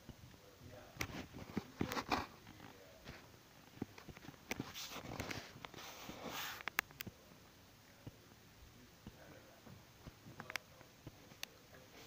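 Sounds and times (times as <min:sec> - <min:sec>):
rustling near microphone: 0:01.0 - 0:06.8.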